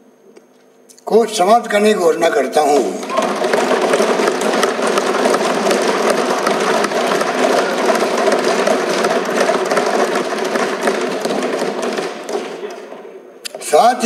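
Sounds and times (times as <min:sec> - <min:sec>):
people thumping wooden desks: 0:02.8 - 0:13.2.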